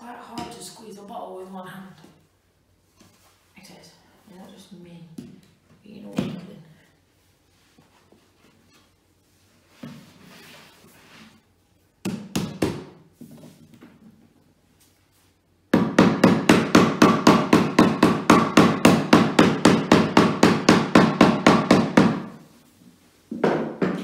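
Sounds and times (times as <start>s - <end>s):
hammer tapping wood panel: 15.7s - 22.3s.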